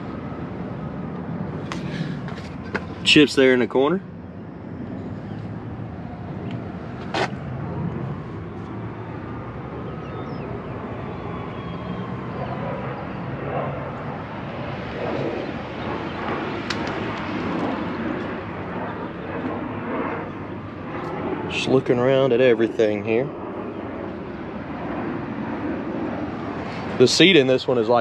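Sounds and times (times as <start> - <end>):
outdoor background rumble: 0.0 - 28.0.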